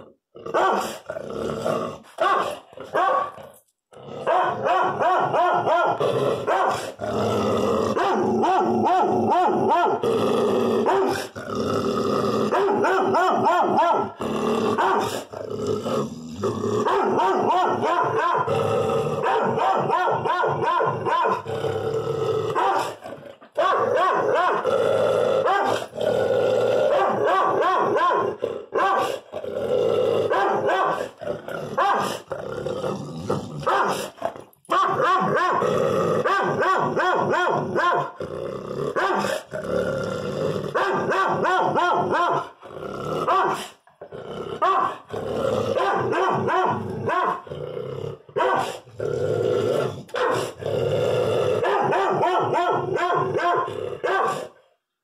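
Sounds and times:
dog barking and growling: 0.0s - 54.9s.

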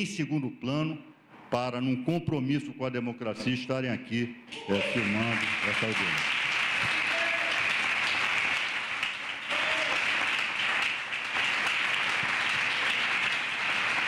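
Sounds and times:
audience applauding: 4.5s - 14.0s.

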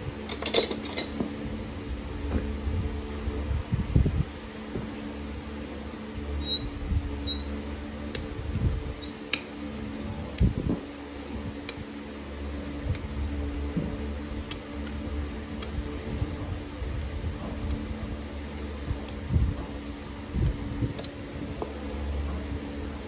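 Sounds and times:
fan humming: 0.0s - 23.0s
metallic clicks of hand tools: 21.0s - 21.7s.

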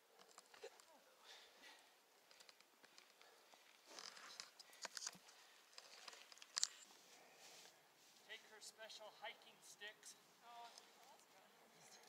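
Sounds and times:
bike clicks and rattles: 2.2s - 6.9s.

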